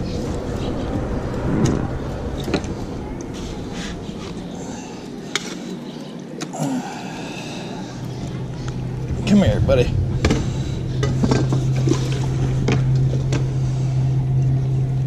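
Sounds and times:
wind noise: 0:00.0 - 0:05.2, 0:08.4 - 0:15.0.

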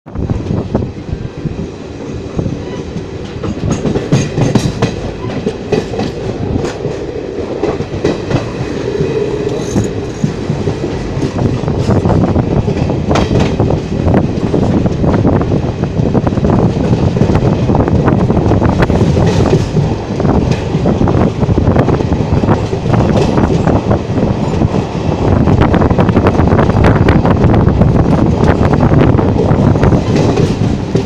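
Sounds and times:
train wheels rumbling on rails: 0:00.1 - 0:31.0
wheels clicking over rail joints: 0:02.9 - 0:13.7.

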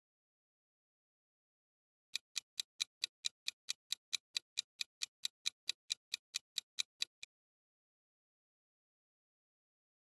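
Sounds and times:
clock ticking: 0:02.1 - 0:07.3.

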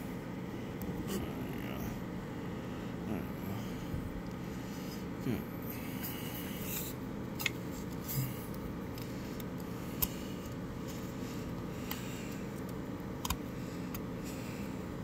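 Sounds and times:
fingers clicking plastic fan blade: 0:11.8 - 0:14.1.

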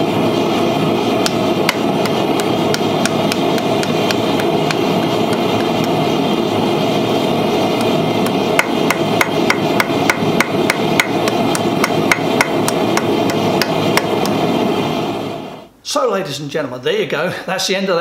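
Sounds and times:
steady background noise: 0:00.0 - 0:18.0
hammer striking iron on anvil: 0:08.6 - 0:14.1.

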